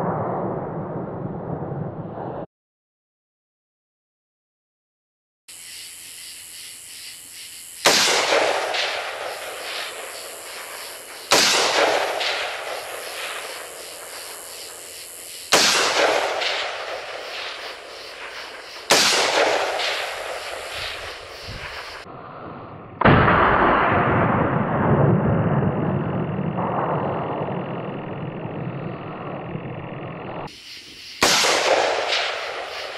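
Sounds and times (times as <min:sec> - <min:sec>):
rifle shots with echo: 0:07.8 - 0:22.0, 0:31.2 - 0:32.9.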